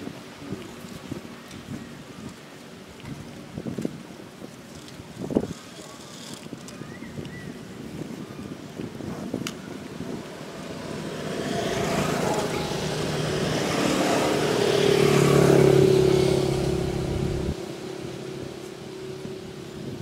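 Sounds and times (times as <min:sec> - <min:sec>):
motor vehicle passing by: 0:10.3 - 0:20.0.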